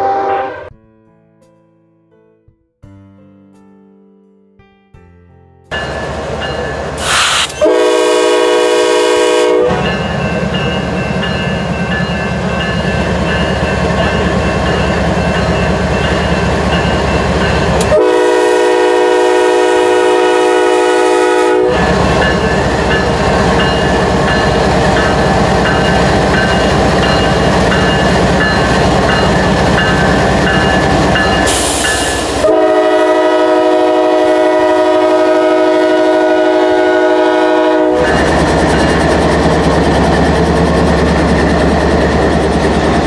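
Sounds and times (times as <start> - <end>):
train air horn blast: 0.0 - 0.7, 7.0 - 9.9, 17.8 - 22.1, 31.4 - 38.2
train rumble and wheel noise: 5.7 - 43.0.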